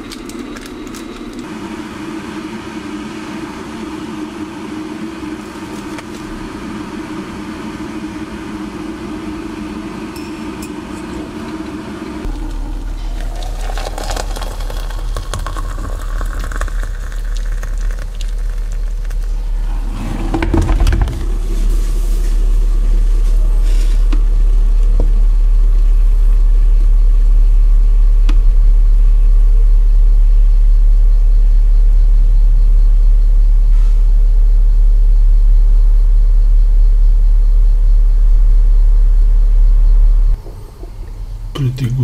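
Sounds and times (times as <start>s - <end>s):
low rumble: 0.0s - 42.0s
hot water pouring into mug: 12.3s - 21.5s.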